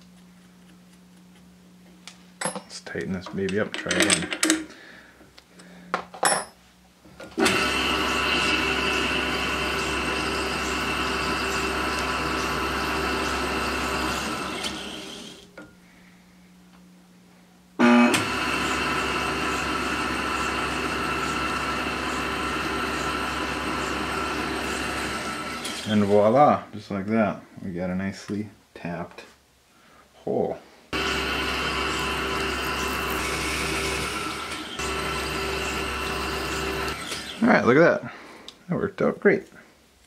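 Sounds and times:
milling machine spindle running: 7.4 - 15.4, 17.8 - 26.1, 31.0 - 37.4.

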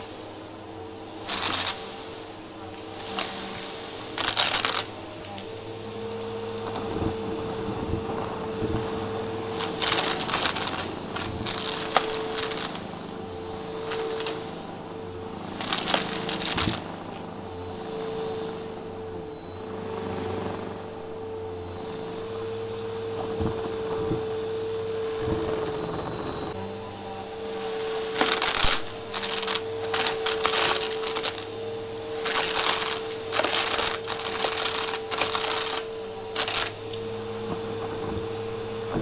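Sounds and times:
vacuum cleaner humming: 0.0 - 39.0
debris crackling and rattling: 32.2 - 36.9.

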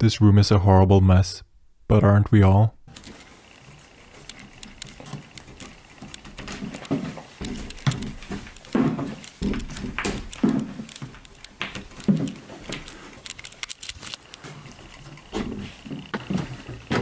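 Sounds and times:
door panels clicking and rattling: 3.6 - 17.0.

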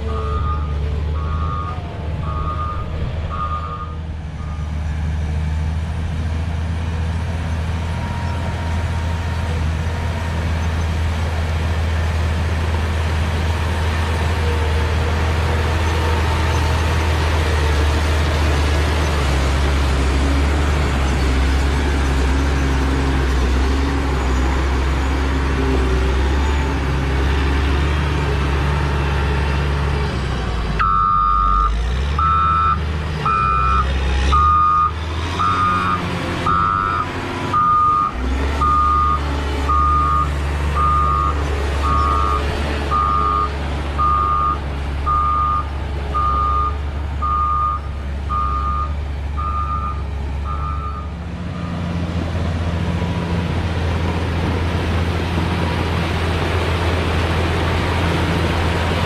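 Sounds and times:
diesel engine running: 0.0 - 59.0
backup alarm beeping: 30.8 - 33.8.

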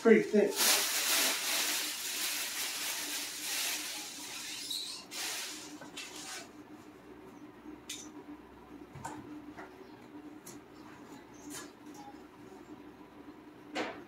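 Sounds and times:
plastic sheet rustling: 0.0 - 6.5.

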